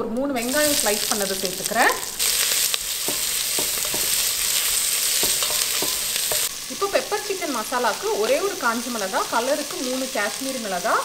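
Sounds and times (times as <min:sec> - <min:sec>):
onions sizzling in oil: 0:00.4 - 0:11.0
wooden spatula scraping pot: 0:00.5 - 0:06.6.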